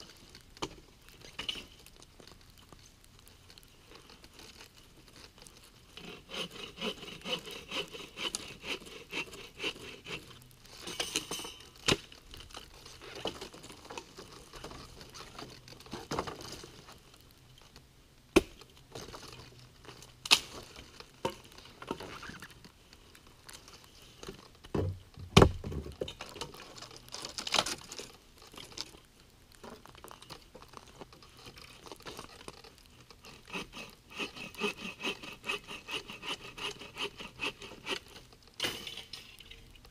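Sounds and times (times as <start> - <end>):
hand saw cutting wood: 6.0 - 10.3, 33.2 - 38.2.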